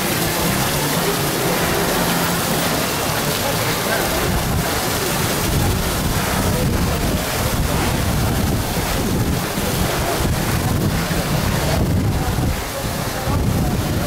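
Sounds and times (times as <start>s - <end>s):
fountain water splashing: 0.0s - 14.0s
wind buffeting microphone: 3.9s - 14.0s.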